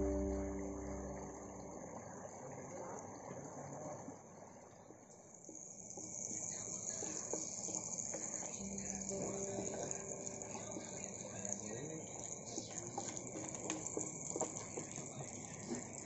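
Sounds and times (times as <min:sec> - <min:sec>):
background music: 0:00.0 - 0:01.8, 0:08.6 - 0:11.6
faint ambient hiss: 0:00.0 - 0:03.8, 0:06.4 - 0:16.0.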